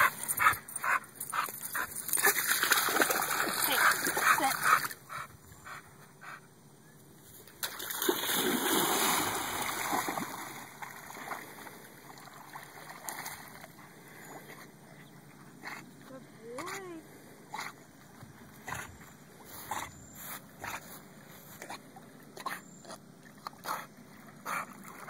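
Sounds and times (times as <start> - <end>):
paddling and lapping water: 0.0 - 6.4, 7.3 - 25.0
dog splashing in water: 2.1 - 5.0, 7.6 - 13.8.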